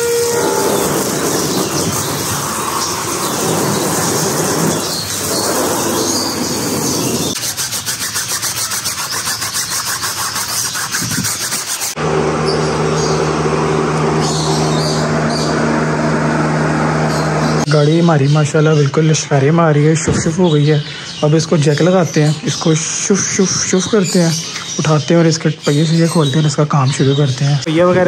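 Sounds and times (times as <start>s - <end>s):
motor hum: 0.0s - 7.4s, 11.9s - 18.3s
vacuum cleaner running: 0.0s - 7.4s, 11.9s - 17.7s.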